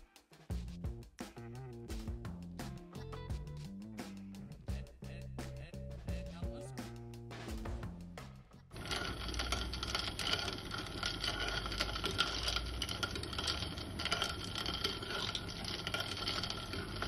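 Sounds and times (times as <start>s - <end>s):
spoon stirring ice in glass jar: 8.8s - 17.0s.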